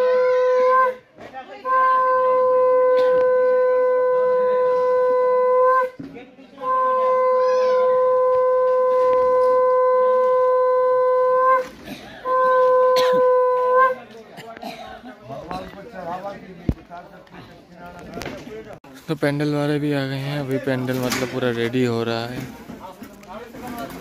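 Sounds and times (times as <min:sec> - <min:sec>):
conch shell blown: 0:00.0 - 0:06.0, 0:06.6 - 0:14.1.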